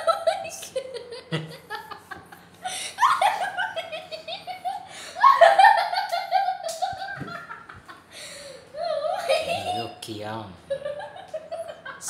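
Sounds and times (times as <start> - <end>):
high-pitched laughter: 8.8 - 9.9.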